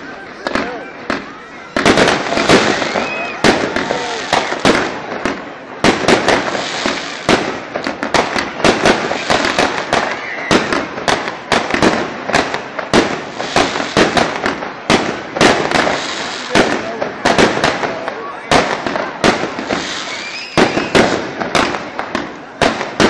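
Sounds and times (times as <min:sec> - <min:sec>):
fireworks bursting with sharp bangs: 0:00.0 - 0:23.0.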